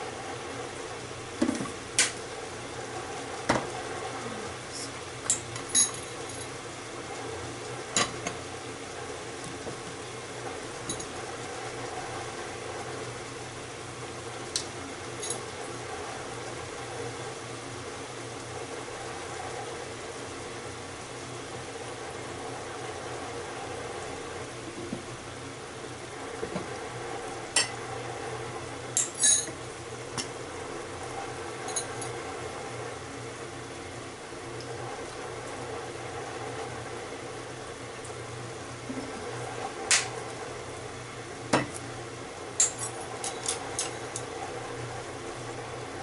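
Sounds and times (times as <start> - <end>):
mechanical hum with hiss: 0.0 - 46.0
kitchen utensils clinking: 42.6 - 44.3.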